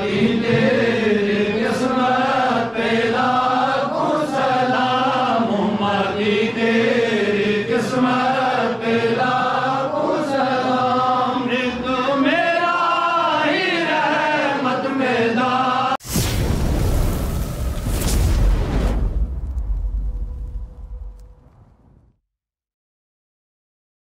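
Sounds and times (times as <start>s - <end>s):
voices chanting: 0.0s - 16.0s.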